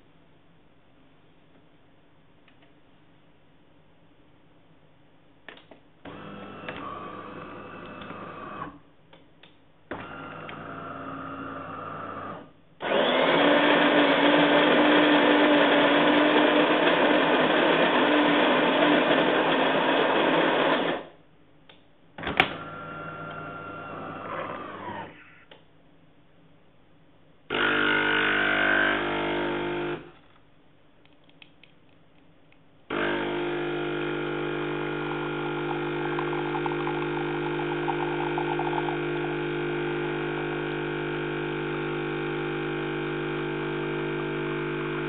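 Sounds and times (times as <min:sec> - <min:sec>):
espresso machine whirring: 0:06.1 - 0:08.8, 0:10.0 - 0:21.1, 0:22.6 - 0:25.2, 0:27.5 - 0:30.2, 0:32.9 - 0:45.0.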